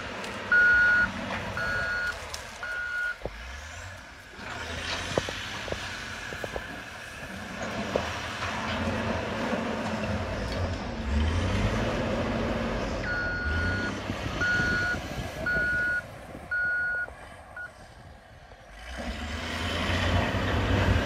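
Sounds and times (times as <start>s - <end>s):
diesel engine running: 0.0s - 21.0s
reversing alarm beeping: 0.5s - 3.2s, 13.0s - 17.8s.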